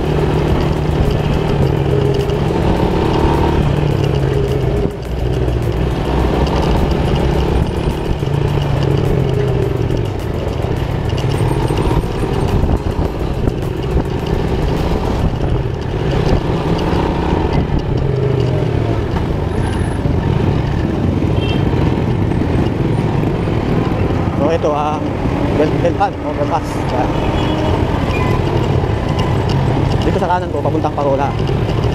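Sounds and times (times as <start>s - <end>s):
motorcycle engine running: 0.0s - 31.9s.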